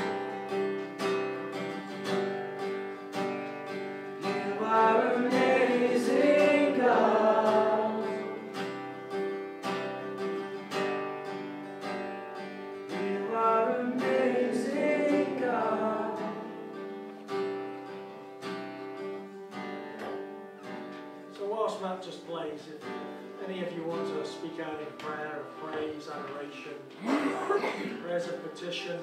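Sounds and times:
acoustic guitar strumming: 0.0 - 29.0
group singing: 4.2 - 8.8, 12.9 - 17.0.

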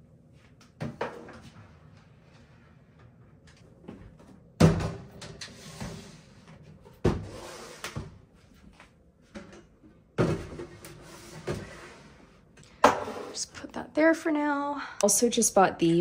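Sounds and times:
plastic bins scraping along shelf: 5.3 - 8.1, 10.2 - 13.5.

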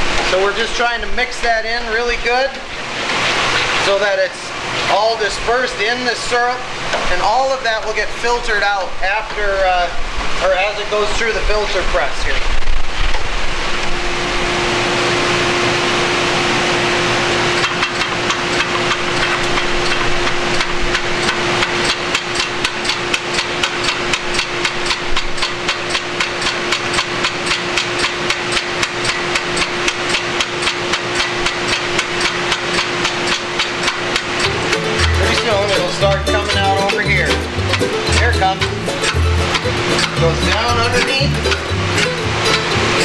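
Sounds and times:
pump exhaust knocking and puffing: 16.6 - 43.0.

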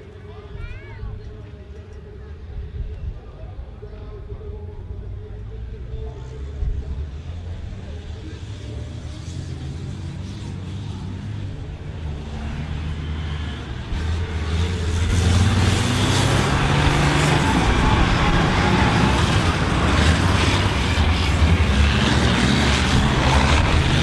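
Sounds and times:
diesel engines running hard: 0.0 - 24.0.

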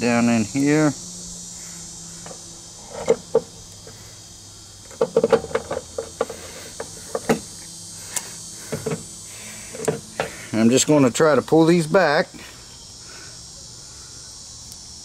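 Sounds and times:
steady high hiss: 0.0 - 15.0
motor parts clicking and knocking: 4.9 - 7.5.

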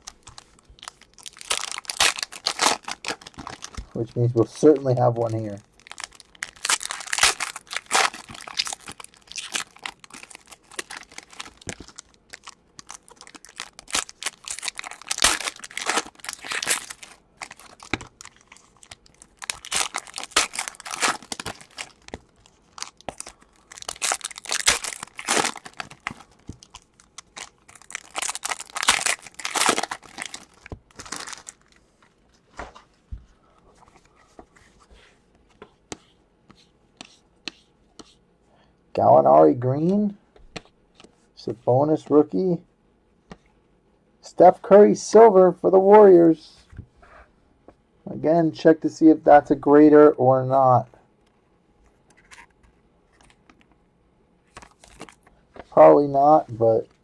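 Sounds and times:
foil wrappers tearing and crinkling: 0.0 - 31.8, 54.5 - 55.3.

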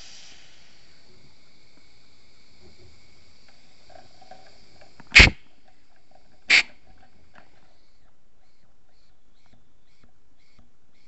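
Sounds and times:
short sharp air blasts: 0.0 - 1.1, 5.0 - 5.5, 6.5 - 6.8
air leak hissing: 0.0 - 8.0.

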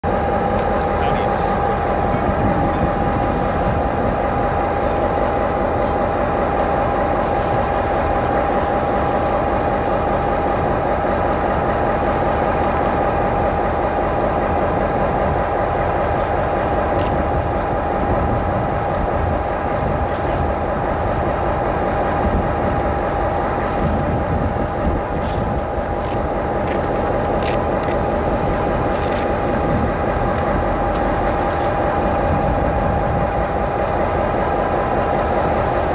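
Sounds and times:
constant engine whine: 0.0 - 35.9
locomotive engine idling: 0.0 - 35.9.

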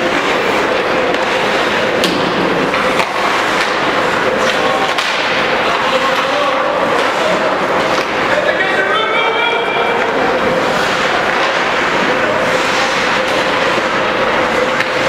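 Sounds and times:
hockey sticks and puck clacking: 0.0 - 9.0, 9.6 - 15.0
skate blades scraping ice: 2.6 - 8.4, 10.0 - 15.0.

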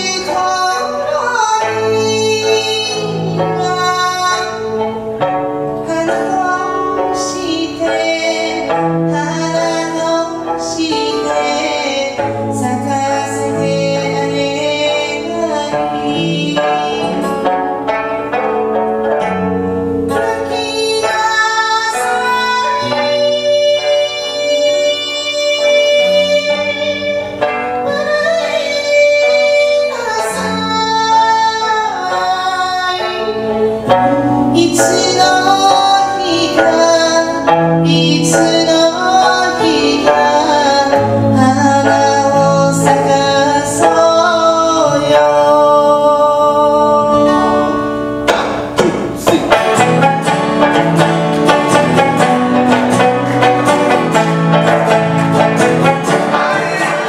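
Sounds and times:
woman singing slow song: 0.0 - 17.8, 20.1 - 48.2
acoustic guitar: 0.0 - 57.0
plucked lute: 0.0 - 57.0.

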